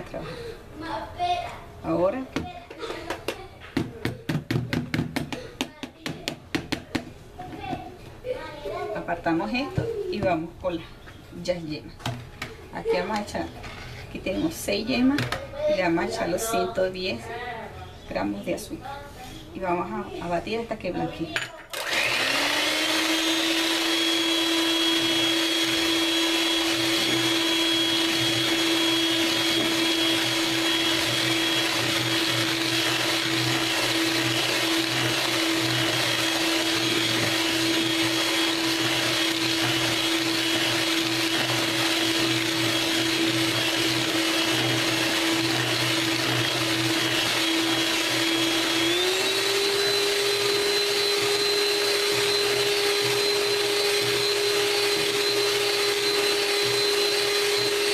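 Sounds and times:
electric hand mixer whining: 21.7s - 57.9s.

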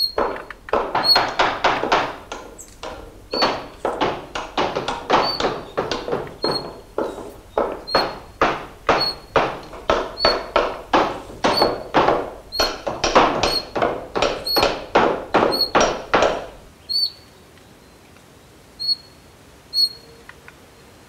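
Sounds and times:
bird chirping: 0.0s - 1.4s, 2.3s - 4.0s
knocking blows: 0.0s - 16.7s.

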